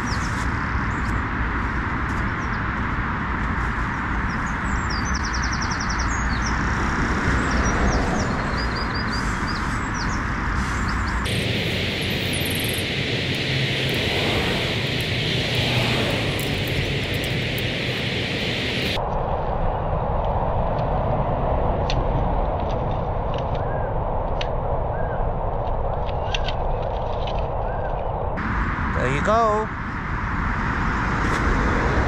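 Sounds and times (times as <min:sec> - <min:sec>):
road traffic hum: 0:00.0 - 0:32.0
small birds chirping: 0:03.8 - 0:19.0
bird trill: 0:07.5 - 0:13.8.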